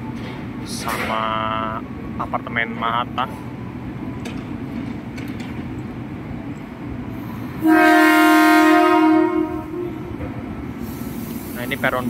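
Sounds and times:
electric train horn blast: 0:07.5 - 0:10.3.

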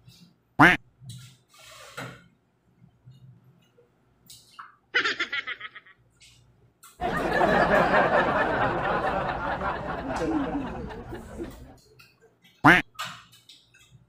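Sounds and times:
person laughing: 0:05.0 - 0:06.0, 0:07.1 - 0:11.8.

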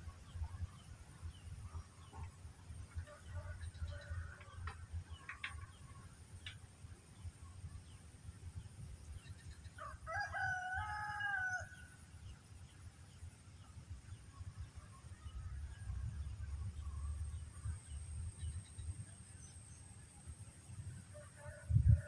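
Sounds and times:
rooster crowing: 0:09.8 - 0:11.9
steady low rumble: 0:12.0 - 0:21.1.

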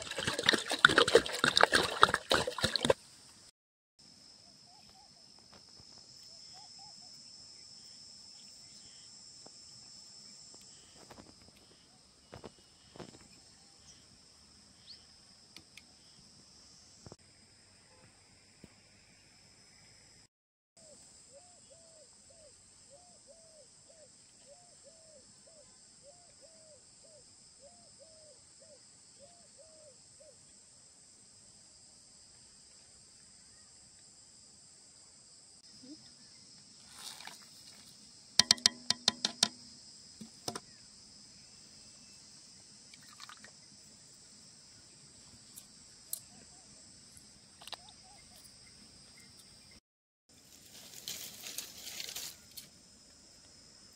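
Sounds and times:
crickets chirping: 0:00.0 - 0:53.9
sharp clinks and knocks: 0:38.4 - 0:40.6.

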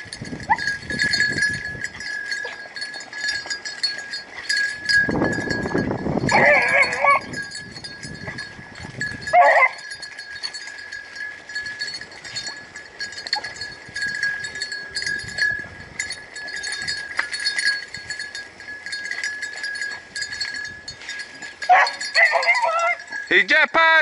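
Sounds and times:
hound baying: 0:06.3 - 0:07.4, 0:09.3 - 0:09.8, 0:21.6 - 0:23.2.

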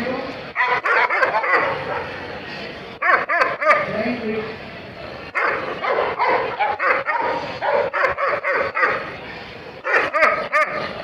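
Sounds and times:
dog barking: 0:00.6 - 0:02.2, 0:03.0 - 0:03.9, 0:05.4 - 0:09.1, 0:09.8 - 0:10.9.

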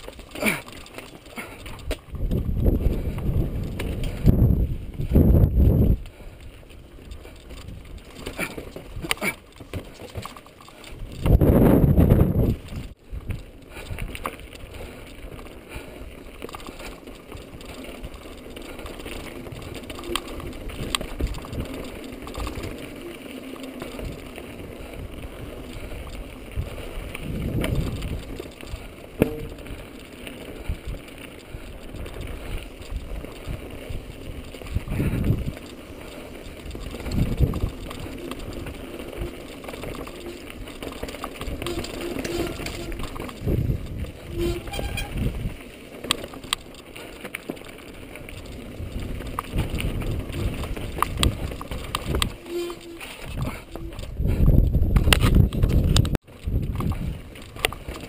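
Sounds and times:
bike tyres rattling over dirt: 0:00.0 - 0:58.0
sharp clicks: 0:16.3 - 0:58.0.

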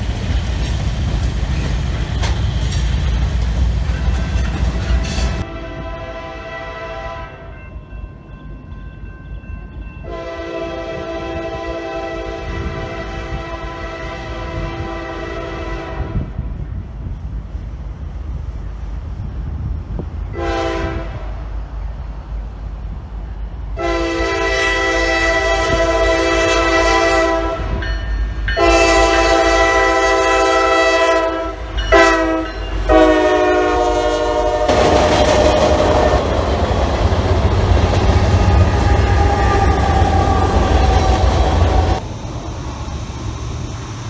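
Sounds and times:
locomotive engines and wheels rumbling: 0:00.0 - 0:44.0
locomotive air horn: 0:05.1 - 0:07.6, 0:10.0 - 0:16.4, 0:20.3 - 0:21.4, 0:23.8 - 0:27.9, 0:28.6 - 0:36.3, 0:38.3 - 0:42.0.

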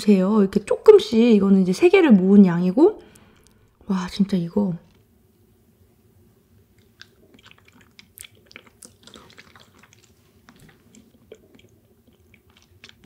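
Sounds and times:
close chewing with wet mouth clicks: 0:06.7 - 0:13.0.

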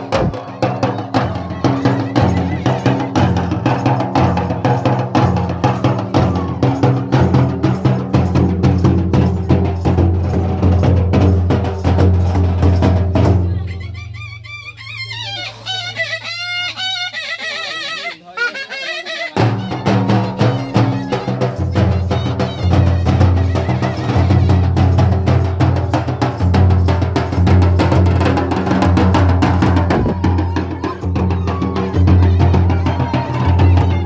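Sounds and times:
shehnai melody: 0:00.0 - 0:07.0, 0:13.5 - 0:25.7, 0:29.7 - 0:34.0
barrel drums beating: 0:00.0 - 0:13.5, 0:19.4 - 0:34.0.

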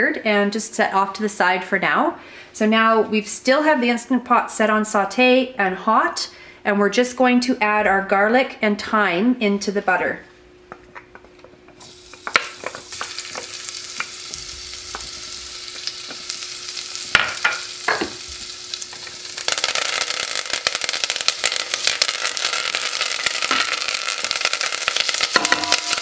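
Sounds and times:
garlic sizzling in butter: 0:11.8 - 0:26.0
wooden spoon knocking on pot: 0:25.4 - 0:26.0.

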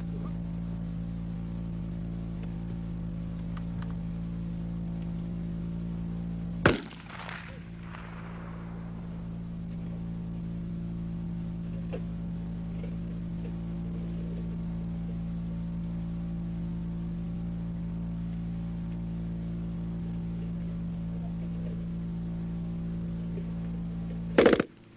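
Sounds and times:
electrical hum: 0:00.0 - 0:24.9
rifle shot with echo: 0:06.6 - 0:09.4.

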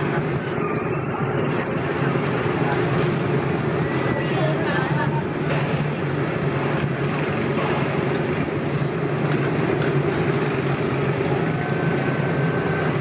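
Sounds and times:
train humming and rumbling: 0:00.0 - 0:13.0.

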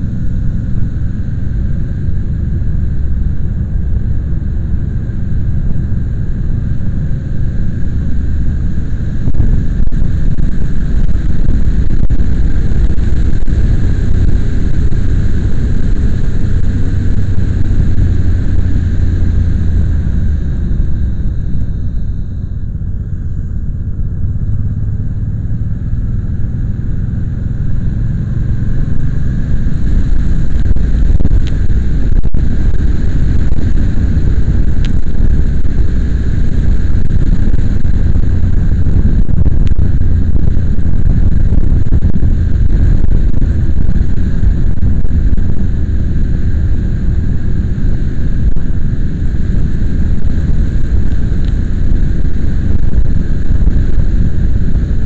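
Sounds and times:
vehicle running: 0:00.0 - 0:55.0
wind and road rumble: 0:00.0 - 0:55.0.

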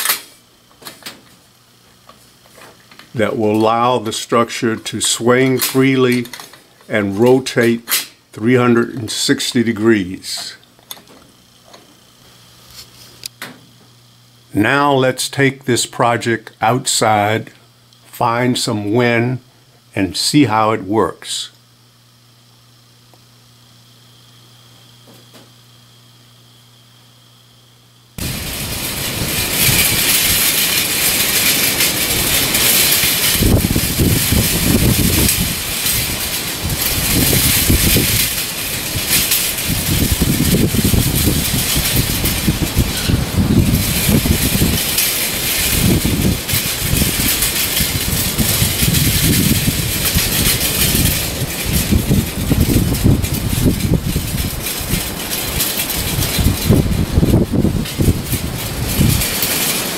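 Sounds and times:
wind buffeting microphone: 0:28.2 - 0:59.4
wind hiss: 0:28.2 - 0:59.9.

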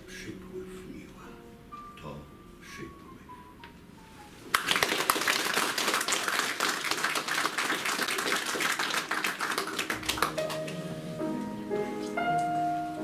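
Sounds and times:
piano music: 0:00.0 - 0:05.0, 0:09.0 - 0:13.0
audience applauding: 0:04.5 - 0:11.0.

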